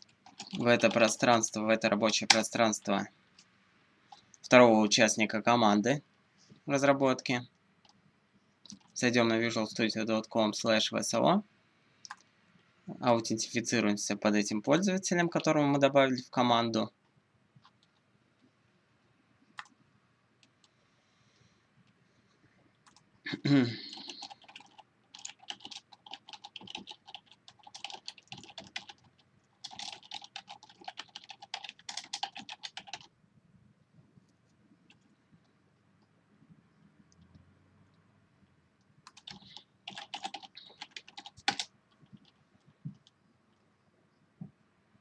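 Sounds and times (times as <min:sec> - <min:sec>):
typing on a keyboard: 0:00.0 - 0:01.2, 0:08.7 - 0:08.9, 0:22.8 - 0:23.0, 0:23.9 - 0:33.1, 0:39.0 - 0:43.2.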